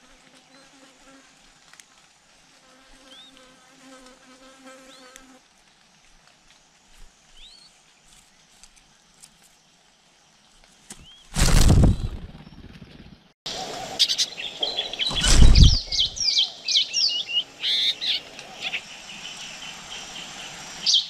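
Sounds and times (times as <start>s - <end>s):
flying insect buzzing: 0.0s - 5.5s.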